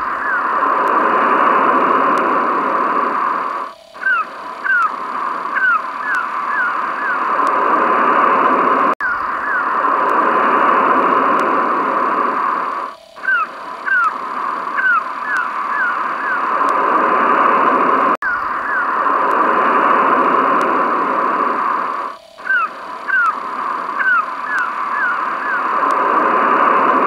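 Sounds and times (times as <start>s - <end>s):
surf noise: 0.0s - 27.0s
seagull cries: 4.0s - 4.9s, 5.5s - 7.2s, 13.2s - 14.2s, 14.8s - 16.5s, 22.4s - 23.4s, 24.0s - 25.7s.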